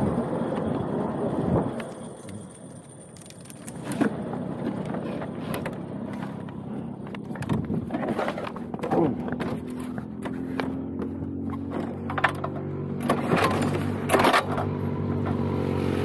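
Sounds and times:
go-kart engine at low revs: 0.0s - 16.0s
kart clicks and knocks: 3.0s - 15.4s.

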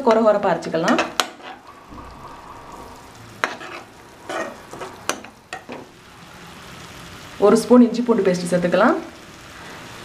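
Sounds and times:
onion paste sizzling in oil: 0.0s - 10.0s
spatula scraping a pan: 0.9s - 1.7s, 3.4s - 5.8s.

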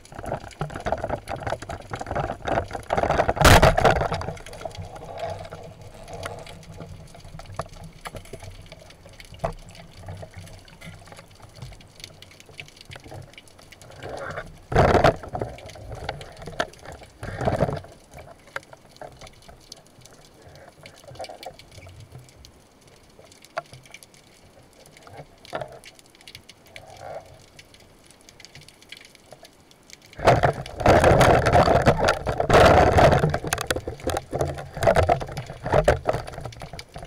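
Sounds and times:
underwater wash with bubbling: 0.0s - 37.0s.

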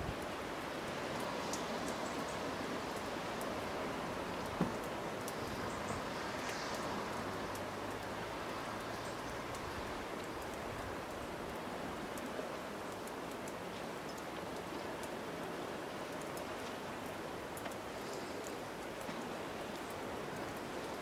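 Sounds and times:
faint crackles: 4.3s - 8.1s, 8.9s - 21.0s.

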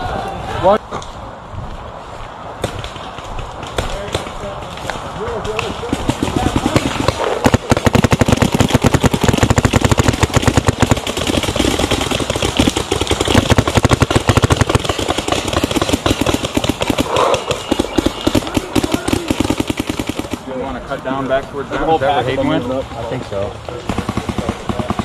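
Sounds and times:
paintball markers firing: 2.6s - 20.4s.

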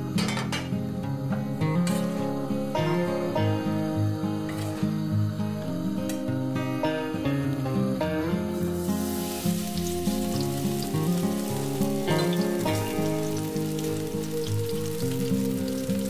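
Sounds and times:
gentle guitar music: 0.0s - 16.0s
batter sizzling in oil: 8.5s - 16.0s.

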